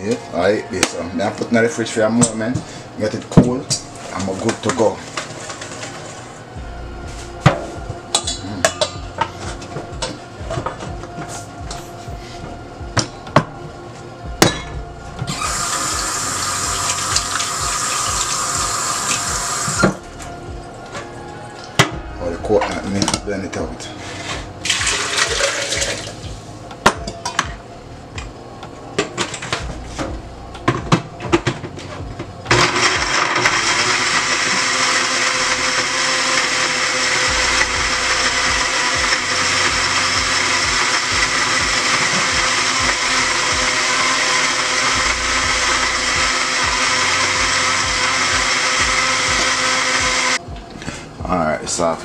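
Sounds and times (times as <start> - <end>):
dishes clinking and clattering: 7.4 - 9.4
tap water running into sink: 15.4 - 20.0, 24.7 - 26.2
water poured into blender jar: 24.7 - 26.2.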